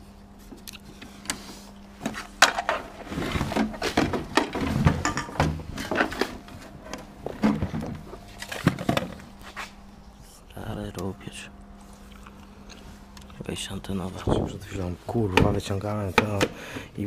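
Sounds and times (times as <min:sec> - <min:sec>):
plastic equipment clattering: 0:02.0 - 0:06.6, 0:07.4 - 0:09.3.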